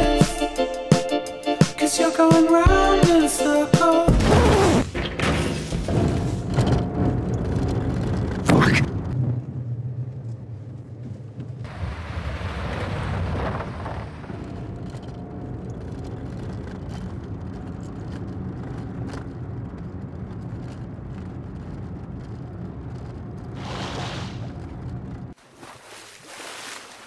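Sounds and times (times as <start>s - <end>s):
tyre and road noise: 3.9s - 27.0s
car engine hum: 6.0s - 25.4s.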